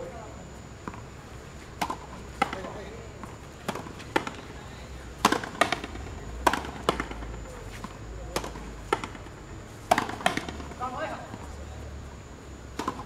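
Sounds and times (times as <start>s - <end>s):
rubber ball hitting rackets and wall: 1.8s - 3.0s, 5.2s - 7.2s, 8.3s - 9.2s, 9.9s - 11.0s, 12.7s - 13.0s.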